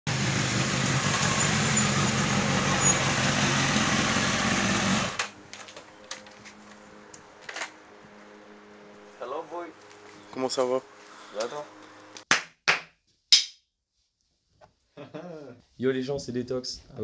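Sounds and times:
motorcycle engine running: 0:00.1 - 0:05.3.

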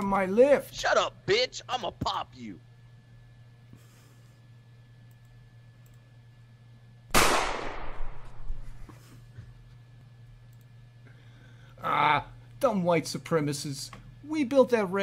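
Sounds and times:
low steady hum: 0:00.0 - 0:15.0
gunshot with ringing tail: 0:07.1 - 0:08.5.

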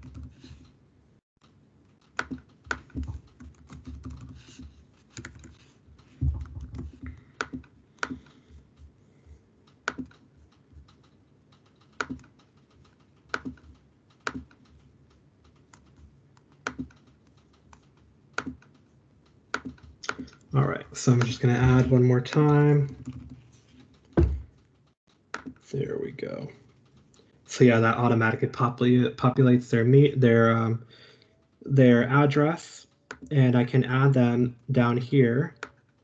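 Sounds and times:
computer keyboard typing: 0:00.0 - 0:00.8, 0:01.4 - 0:09.0, 0:09.6 - 0:25.6.

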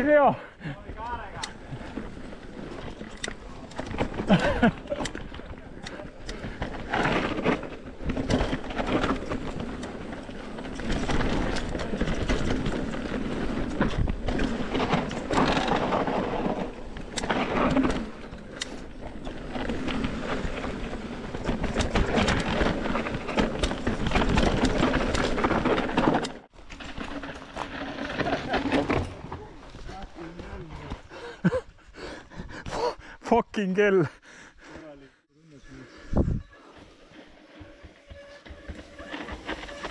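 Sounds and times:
mountain bike rolling on dirt: 0:00.0 - 0:32.6, 0:35.6 - 0:39.9
bike rattling and knocking: 0:00.8 - 0:31.2, 0:36.2 - 0:39.9
wind rumbling on microphone: 0:36.0 - 0:36.6.

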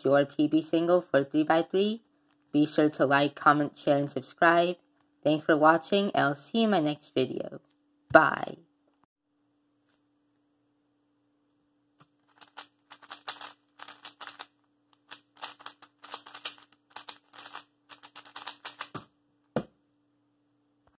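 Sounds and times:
speed cube plastic clicking: 0:12.2 - 0:19.1.

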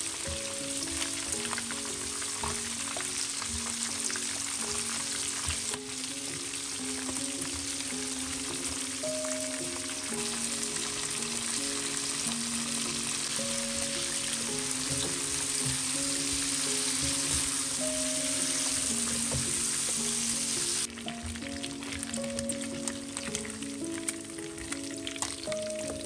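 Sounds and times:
oil sizzling while deep-frying: 0:00.0 - 0:26.0
soft background music: 0:00.0 - 0:26.0.

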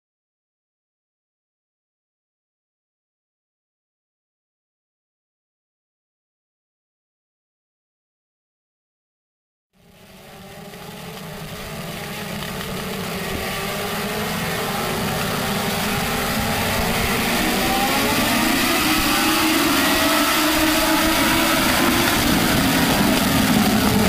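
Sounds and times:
race car engines: 0:09.8 - 0:24.0.

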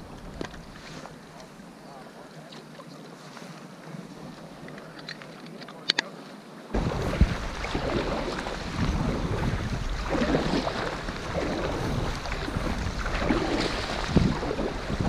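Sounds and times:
wind rumbling on microphone: 0:00.0 - 0:02.0, 0:06.7 - 0:15.0
water splashing and lapping: 0:06.8 - 0:15.0.

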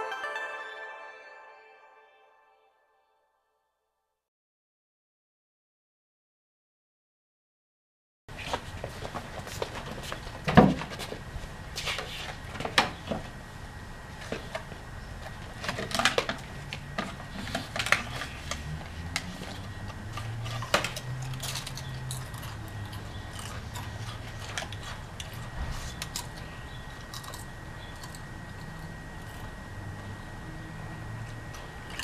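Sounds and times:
chips crunching: 0:17.4 - 0:29.5
snack tubes clicking and crinkling: 0:17.5 - 0:28.8.

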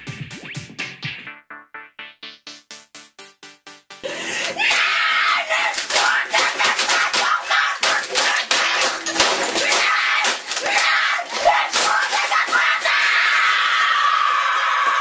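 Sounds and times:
boy screaming: 0:04.5 - 0:06.5.

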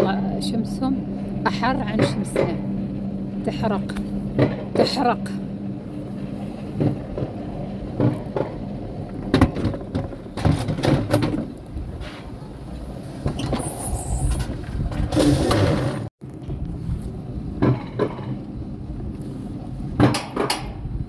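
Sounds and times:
sled wheels clacking on metal rails: 0:00.0 - 0:16.1, 0:17.6 - 0:18.5, 0:19.9 - 0:20.9.

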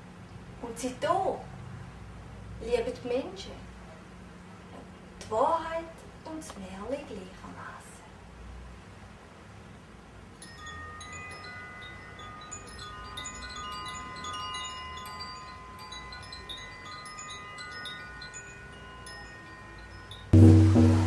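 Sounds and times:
chimes ringing: 0:10.4 - 0:21.0.

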